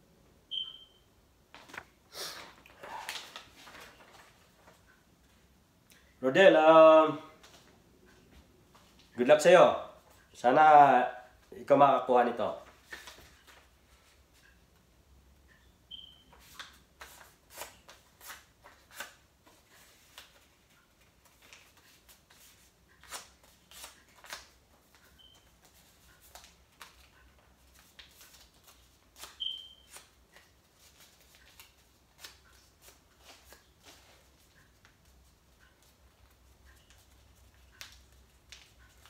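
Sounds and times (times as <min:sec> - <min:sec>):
paper crinkling: 0:01.6 - 0:04.8.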